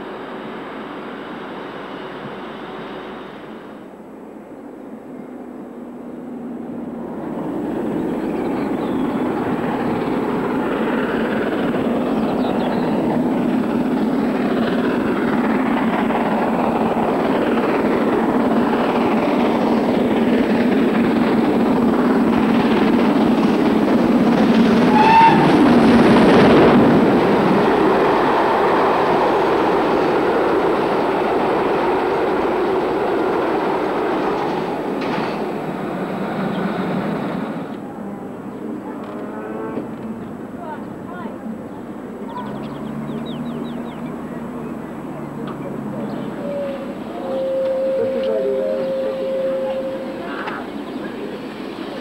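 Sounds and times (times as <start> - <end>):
steam train rumbling past: 0.0 - 52.0
steam whistle toot: 24.9 - 25.6, 46.4 - 50.5.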